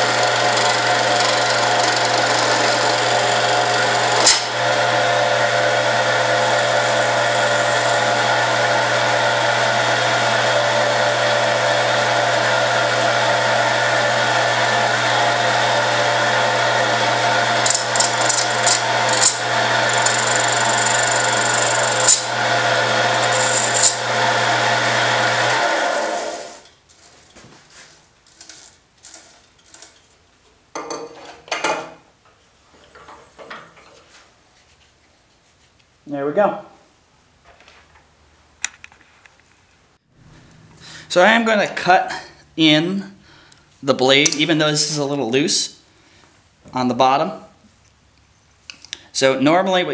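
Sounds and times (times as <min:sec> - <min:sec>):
turning tool scraping acrylic: 0:00.0 - 0:04.4, 0:17.5 - 0:24.2, 0:26.6 - 0:30.1
wood lathe motor running: 0:00.0 - 0:26.6
lathe winding down: 0:00.0 - 0:26.7
sharp ticks and scratchy cuts: 0:17.7 - 0:22.2.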